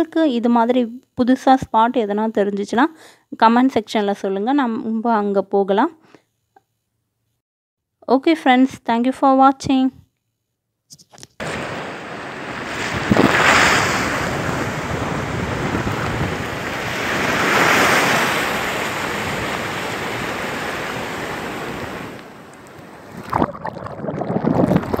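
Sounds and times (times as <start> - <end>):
ocean surf breaking: 11.4 - 23.5.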